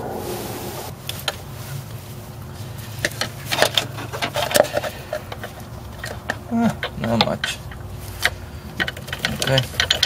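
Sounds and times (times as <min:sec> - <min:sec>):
steady low hum: 0:00.0 - 0:03.2
hand tools clicking and knocking: 0:03.1 - 0:10.0.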